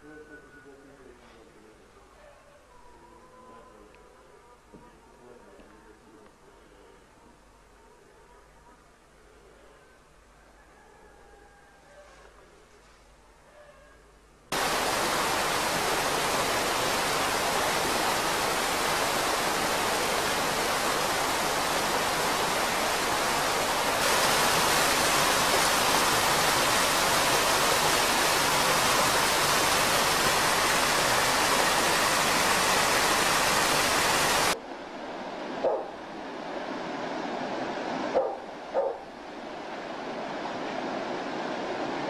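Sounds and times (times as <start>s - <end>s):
loud steady hiss: 14.5s - 42.0s.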